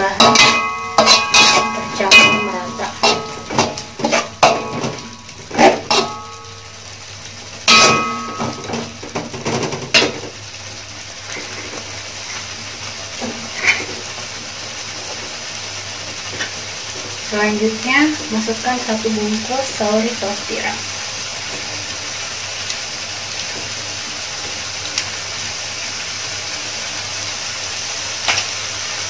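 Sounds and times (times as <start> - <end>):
sauce hissing in a pan: 0.0 - 29.0
metal spatula scraping a wok: 0.1 - 6.5, 13.2 - 14.2.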